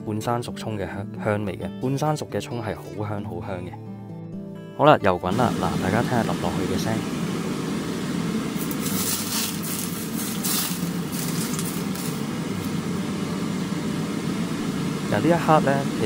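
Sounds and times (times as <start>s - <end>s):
steady low hum: 5.3s - 16.0s
hot oil sizzling and crackling: 5.5s - 16.0s.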